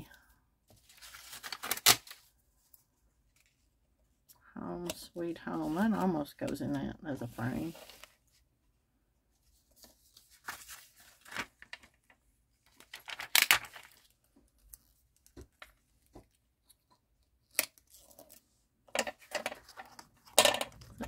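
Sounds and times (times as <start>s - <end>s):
paper rustling and ripping: 0.8s - 2.3s, 7.4s - 8.2s, 9.7s - 12.0s, 12.7s - 14.1s.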